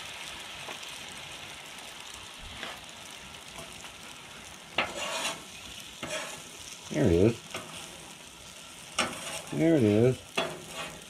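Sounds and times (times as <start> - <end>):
food sizzling on a griddle: 0.0 - 11.0
spatula scraping griddle: 3.5 - 11.0.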